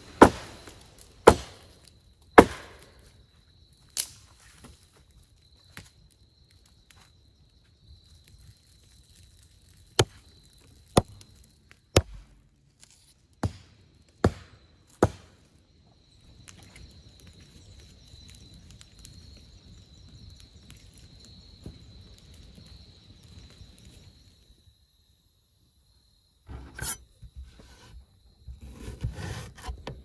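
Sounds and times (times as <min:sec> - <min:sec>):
campfire crackling: 0:00.0 - 0:14.8, 0:15.4 - 0:25.5
firewood being chopped: 0:00.1 - 0:01.8, 0:02.4 - 0:03.0, 0:09.9 - 0:10.2, 0:10.8 - 0:15.4.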